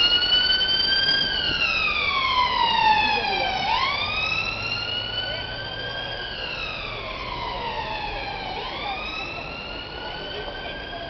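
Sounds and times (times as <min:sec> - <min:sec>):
ambulance siren wailing: 0:00.0 - 0:11.0
low traffic noise: 0:00.0 - 0:11.0.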